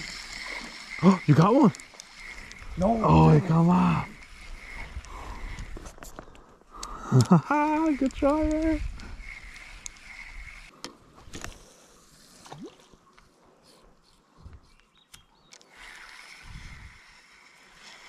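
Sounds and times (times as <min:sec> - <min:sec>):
sharp clicks: 0:00.0 - 0:02.8, 0:04.1 - 0:10.6
faint stream running water: 0:00.0 - 0:05.6, 0:06.8 - 0:18.0.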